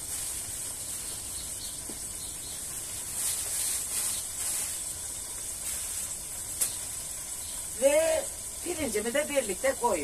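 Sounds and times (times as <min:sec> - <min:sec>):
leeks sizzling in hot oil: 0:00.0 - 0:10.0.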